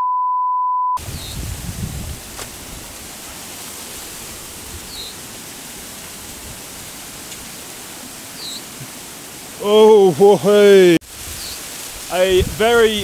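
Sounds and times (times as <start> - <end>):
censor bleep tone: 0.0 - 1.0
water and wind rushing: 1.0 - 13.0.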